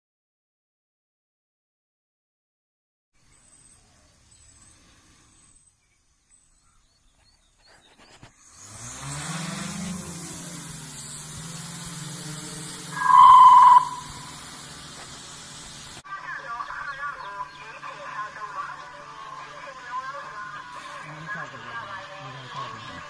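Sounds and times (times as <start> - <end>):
drone propeller hum: 8.5 - 16.0
short high beep: 12.9 - 14.3.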